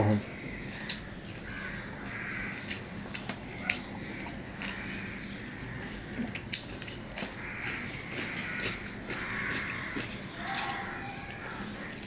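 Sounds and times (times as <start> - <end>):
wet chewing: 0.8 - 5.2, 6.1 - 12.0.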